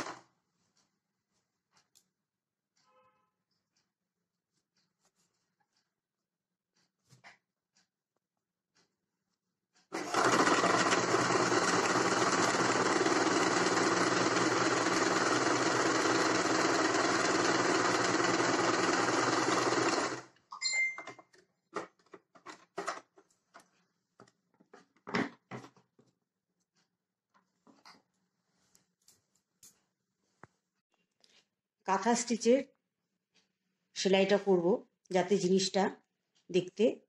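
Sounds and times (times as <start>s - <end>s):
sewing machine stitching: 0.0s - 0.3s, 9.8s - 20.4s.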